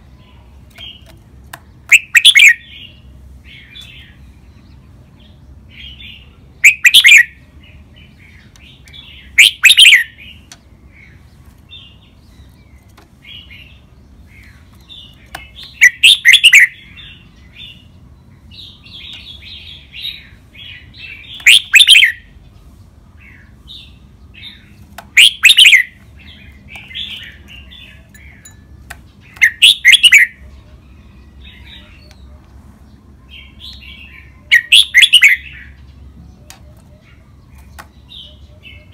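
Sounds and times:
bird song phrases: 0.0 - 38.9
soft bird chattering: 0.3 - 2.9, 8.4 - 10.6, 14.4 - 17.9, 21.1 - 22.2, 24.4 - 30.8, 33.7 - 35.8.

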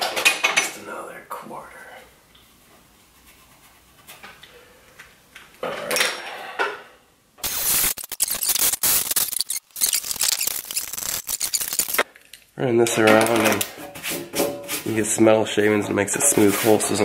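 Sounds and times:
drill grinding through sheet metal: 7.4 - 12.0.

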